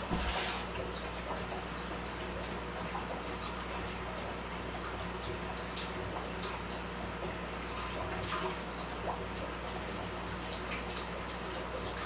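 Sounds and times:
aquarium equipment humming: 0.0s - 12.0s
running water: 0.0s - 12.0s
water drips and small splashes: 0.0s - 12.0s.

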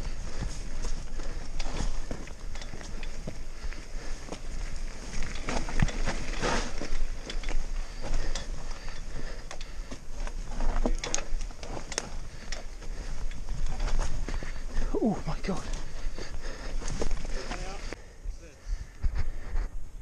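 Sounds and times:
bike chain and suspension rattling: 0.0s - 18.0s
bike tyres rolling over dirt: 0.0s - 18.0s.

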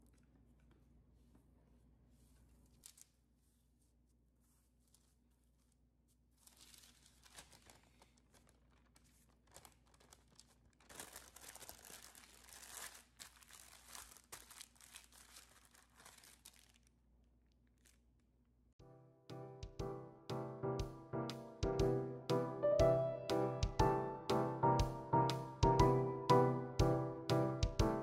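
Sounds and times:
parchment paper crinkling: 0.0s - 18.3s.

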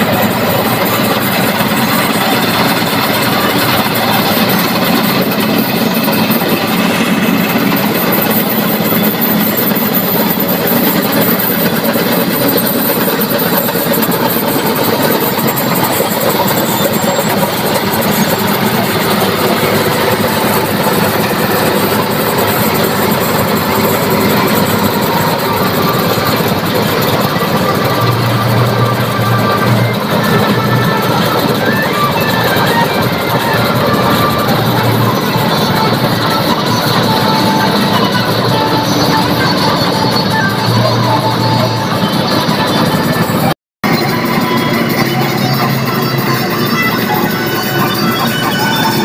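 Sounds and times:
combine harvester running: 0.0s - 49.0s.

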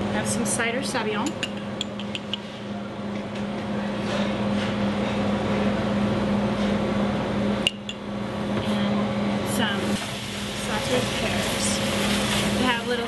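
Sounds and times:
mechanical hum and hiss: 0.0s - 13.0s.

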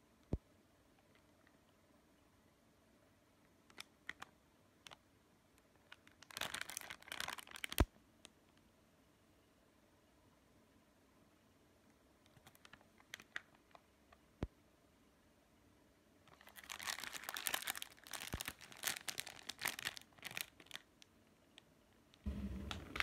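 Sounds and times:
plastic wrapper crinkling: 3.7s - 5.0s, 5.8s - 7.9s, 12.3s - 13.8s, 16.3s - 21.0s.

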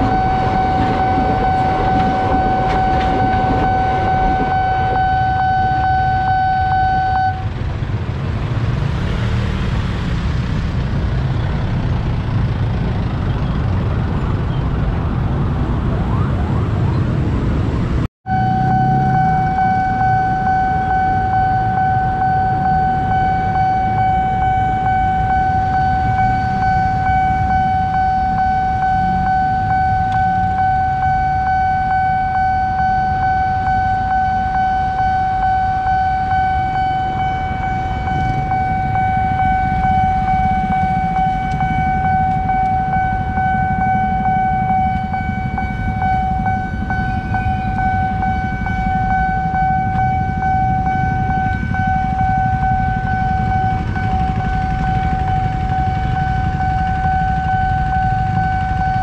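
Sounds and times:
level crossing alarm tone: 0.0s - 7.5s, 18.3s - 59.0s
motorbikes and cars passing: 7.4s - 32.0s, 35.4s - 59.0s.

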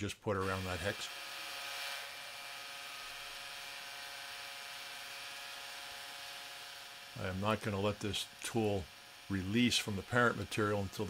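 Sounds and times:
milling machine spindle whine: 0.4s - 11.0s
end mill cutting brass hiss: 6.5s - 11.0s.

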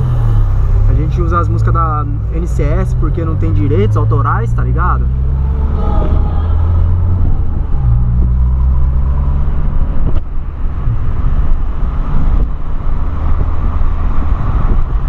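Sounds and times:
car engine drone from cabin: 0.0s - 15.0s.

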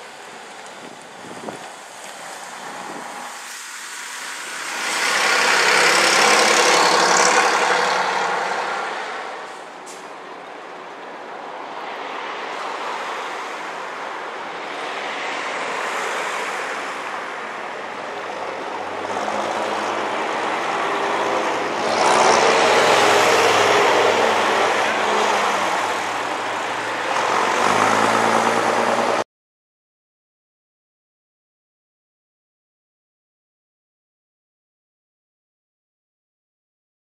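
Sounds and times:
bus driving past: 0.0s - 29.2s
car passing: 0.2s - 10.8s, 11.4s - 29.2s.

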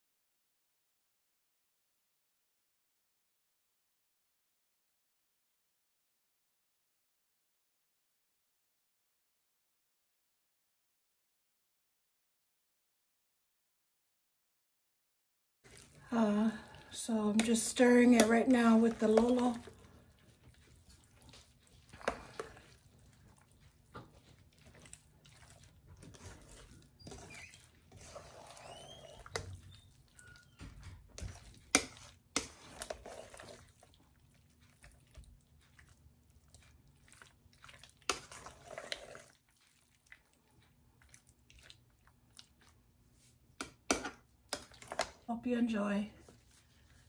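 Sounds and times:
soft wet squelching: 15.7s - 45.3s, 46.1s - 47.0s.

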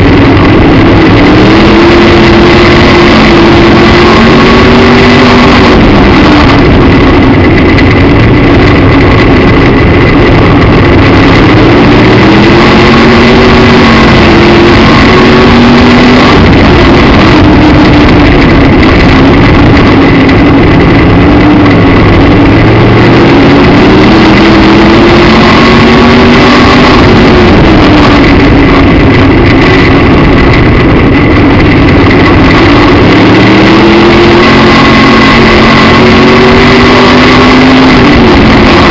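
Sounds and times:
race car engine revving: 0.0s - 38.9s.

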